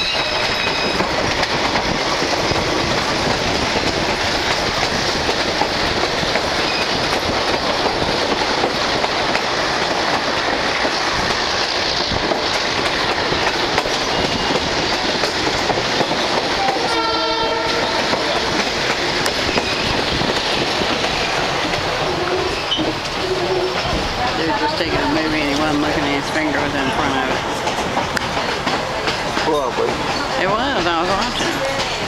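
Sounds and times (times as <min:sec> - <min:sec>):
train wheels rumbling on rails: 0:00.0 - 0:32.0
train horn blast: 0:16.6 - 0:18.5.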